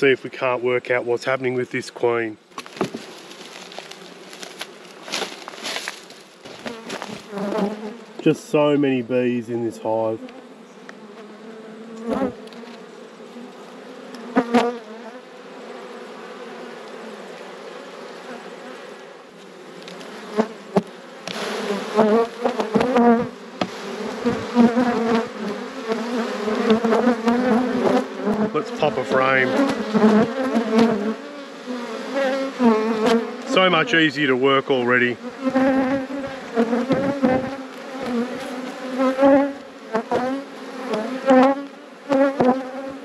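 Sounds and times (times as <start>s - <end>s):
bees buzzing: 2.0s - 43.0s
sharp knocks: 23.6s - 24.5s.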